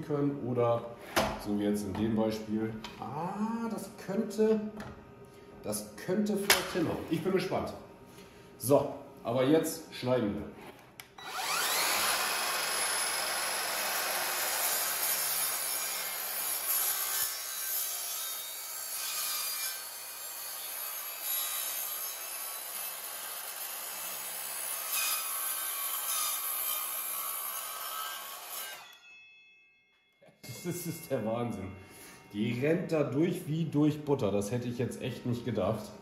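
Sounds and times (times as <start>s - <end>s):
mitre saw cutting wood: 11.2s - 29.0s.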